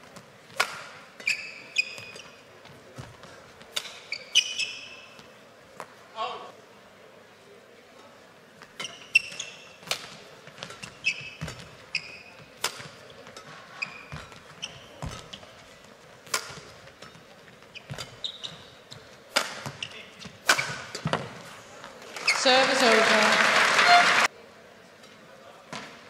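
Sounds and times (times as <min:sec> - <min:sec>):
shoes squeaking on court: 0:00.0 - 0:06.0, 0:08.6 - 0:22.6
racket striking shuttlecock: 0:00.5 - 0:02.3, 0:03.7 - 0:04.8, 0:08.8 - 0:11.7, 0:12.3 - 0:15.4, 0:16.2 - 0:18.2, 0:19.3 - 0:21.3.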